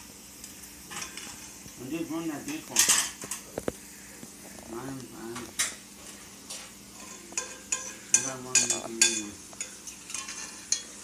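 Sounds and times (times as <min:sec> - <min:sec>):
dishes and cutlery clinking: 0:02.4 - 0:03.5, 0:05.3 - 0:11.0.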